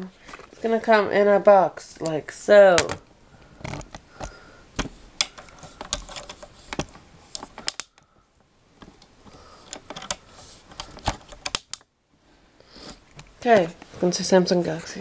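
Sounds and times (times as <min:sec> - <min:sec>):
handling clicks and taps: 0:03.6 - 0:08.0.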